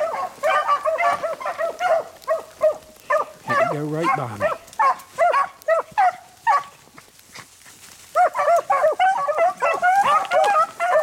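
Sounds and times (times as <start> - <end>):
hounds baying: 0.0 - 11.0.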